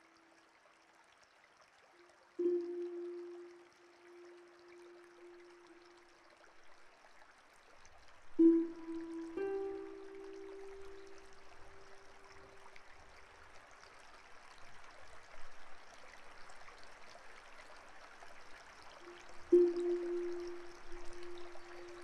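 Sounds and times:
held musical note: 0:02.4 - 0:05.9, 0:08.4 - 0:12.4, 0:19.1 - 0:22.0
running water rushing: 0:02.4 - 0:22.0.

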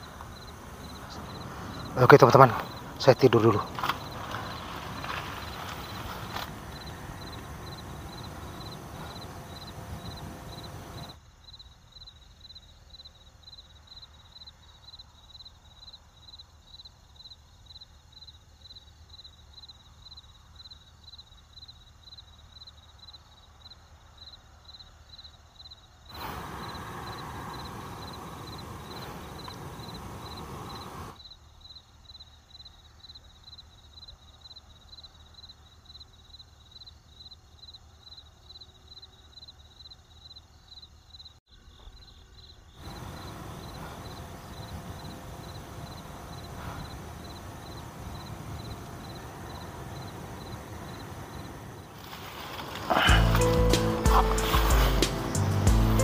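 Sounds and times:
crickets chirping: 0:00.0 - 0:56.0
electric fan running: 0:04.2 - 0:11.1.

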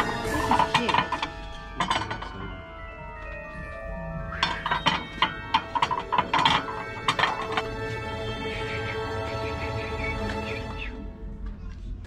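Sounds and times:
ceramic platters clinking: 0:00.0 - 0:02.6, 0:04.3 - 0:08.0.

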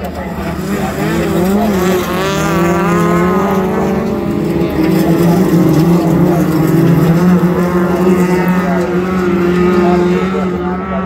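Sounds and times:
race car engines at high revs: 0:00.0 - 0:11.0.

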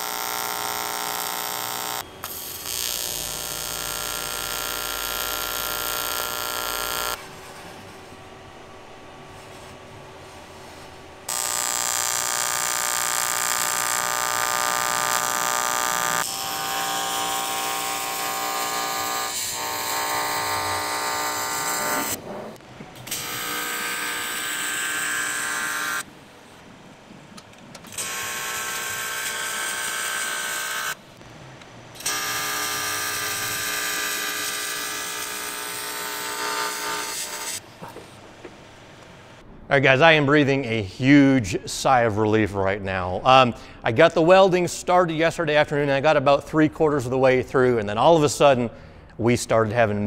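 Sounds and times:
welding arc buzzing: 0:00.0 - 0:26.2, 0:27.4 - 0:39.4.

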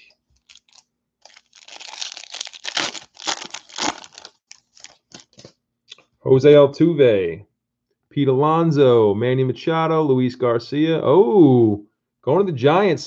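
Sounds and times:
foil wrapper tearing and crinkling: 0:00.4 - 0:05.5.

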